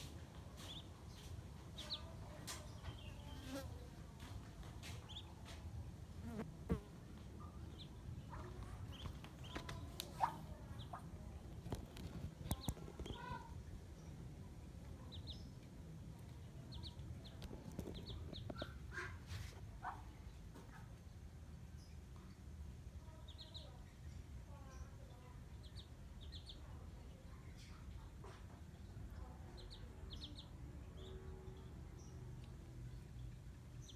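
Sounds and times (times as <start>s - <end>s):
ducklings peeping: 0.0s - 3.4s, 4.2s - 5.5s, 7.5s - 13.5s, 14.9s - 20.8s, 23.2s - 23.7s, 25.0s - 26.8s, 27.8s - 33.9s.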